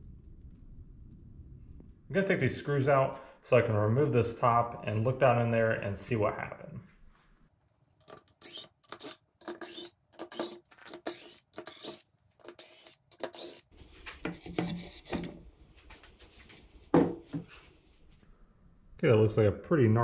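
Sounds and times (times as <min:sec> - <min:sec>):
cordless drill whirring: 0:08.4 - 0:13.7
plywood rubbing and knocking: 0:16.9 - 0:17.6.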